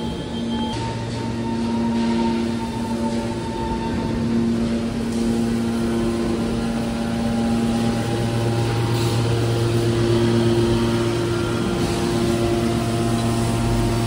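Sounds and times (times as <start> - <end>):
hydraulic motor and pump drone: 0.0 - 14.0.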